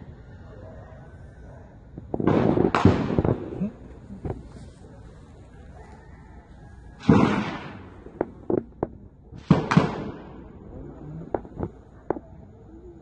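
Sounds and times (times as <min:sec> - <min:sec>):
gunshots with echoes: 0:02.2 - 0:03.7, 0:07.0 - 0:08.5, 0:09.4 - 0:10.5.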